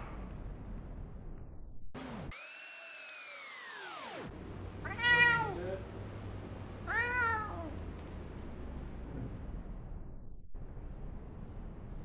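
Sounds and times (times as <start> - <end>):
cat meowing: 4.8 - 5.6, 6.8 - 7.7.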